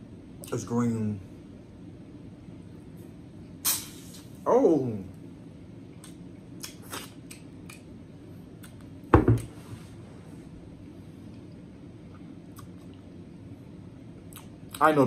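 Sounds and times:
heavier knock: 0:09.1 - 0:09.4.

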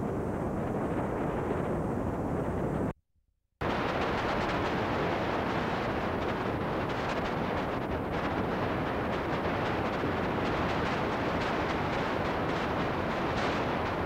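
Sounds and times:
tape noise hiss and rumble: 0:03.6 - 0:14.0.

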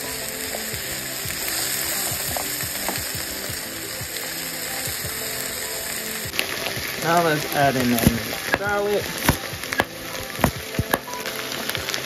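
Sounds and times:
background music: 0:00.0 - 0:12.0
vegetables sizzling in a pan: 0:00.0 - 0:12.0.

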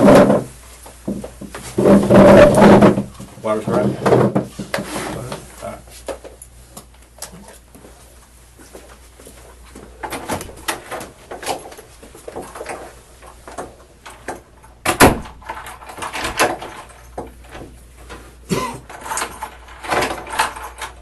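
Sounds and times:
knocks and rustling: 0:00.0 - 0:08.0, 0:08.6 - 0:21.0
door unlatching and opening: 0:10.0 - 0:11.8, 0:13.5 - 0:17.8, 0:18.9 - 0:21.0.

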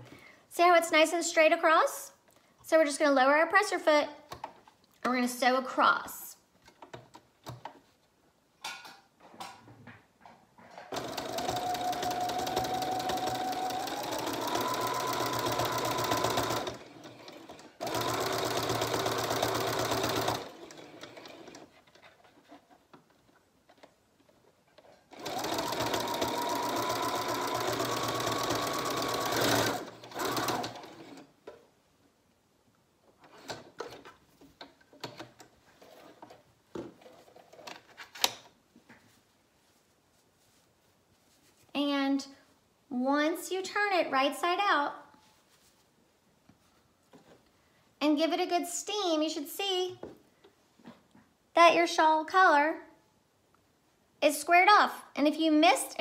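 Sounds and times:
sewing machine stitching: 0:10.9 - 0:21.8, 0:24.8 - 0:31.3.

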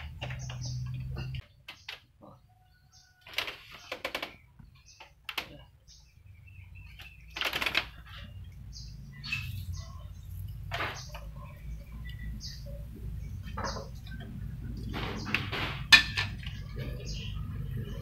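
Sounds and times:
bird chirps: 0:00.0 - 0:15.5, 0:16.4 - 0:18.0.

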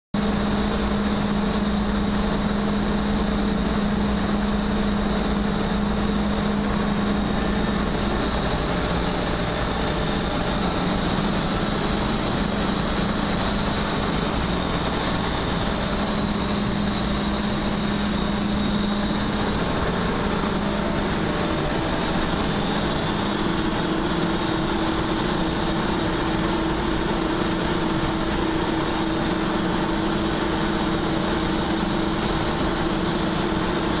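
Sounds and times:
asphalt plant machinery hum: 0:00.2 - 0:34.0.

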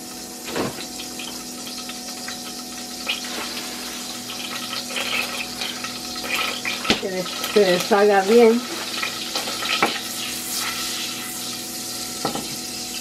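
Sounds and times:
butter sizzling in a saucepan: 0:00.0 - 0:13.0.

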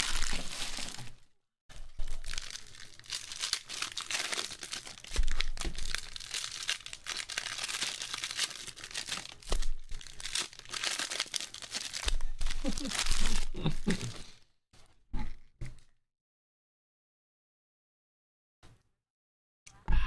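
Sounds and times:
foil wrappers crinkling and tearing: 0:00.0 - 0:14.3.

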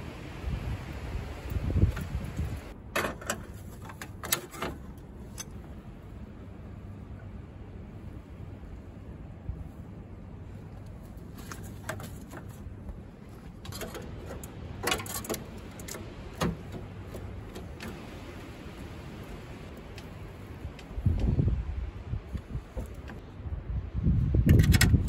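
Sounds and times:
car parts clicking and clinking: 0:02.7 - 0:05.8, 0:11.4 - 0:18.0
steady low hum: 0:04.8 - 0:24.3.

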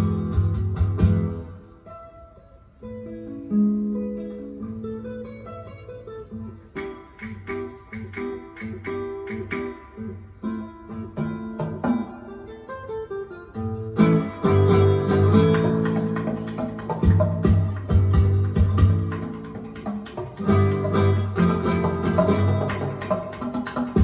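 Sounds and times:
plucked guitar music: 0:00.0 - 0:24.0.

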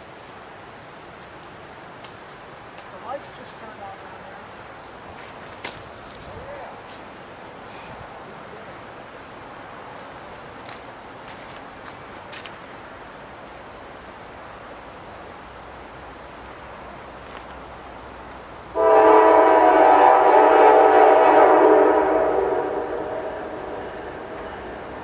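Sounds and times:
locomotive air horn blast: 0:18.8 - 0:25.0.

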